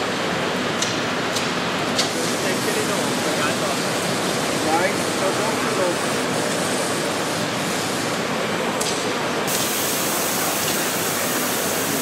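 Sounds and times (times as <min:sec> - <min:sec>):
model steam locomotive hissing: 0:09.5 - 0:12.0
sharp high steam hiss: 0:09.5 - 0:12.0.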